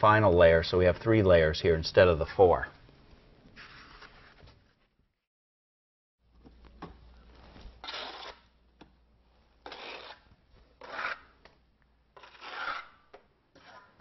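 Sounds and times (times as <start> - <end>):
trowel scraping mortar: 7.8 - 8.5, 9.6 - 11.4, 12.2 - 14.0.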